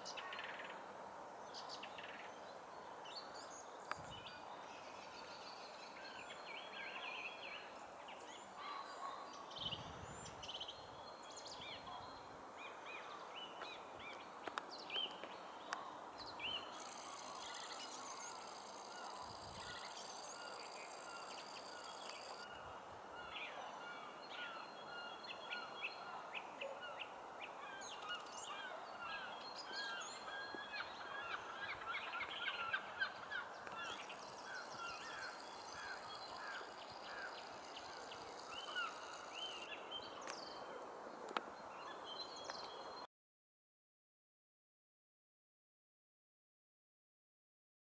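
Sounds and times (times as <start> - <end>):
steady background hiss: 0.0 - 8.6, 9.3 - 42.9
rapid repeated bird calls: 15.0 - 22.5, 28.2 - 39.9
birds chirping and singing: 16.2 - 22.4, 30.1 - 39.7.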